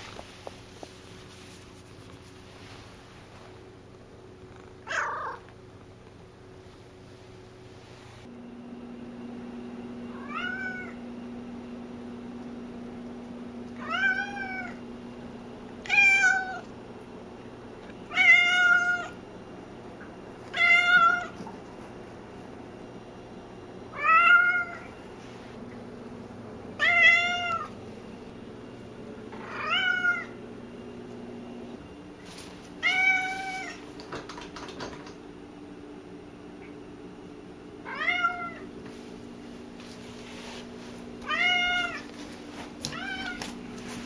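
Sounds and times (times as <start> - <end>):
cat meowing loudly: 37.9 - 38.6.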